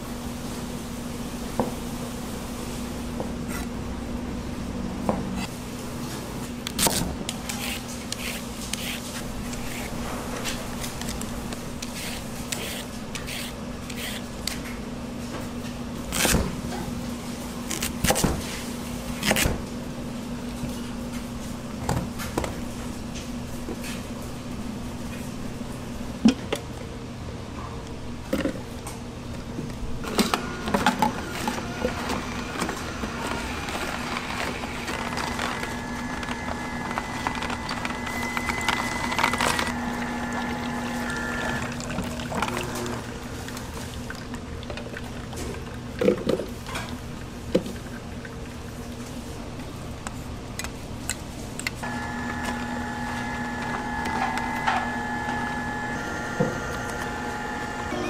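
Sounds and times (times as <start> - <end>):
knife slicing and scraping: 7.5 - 10.0.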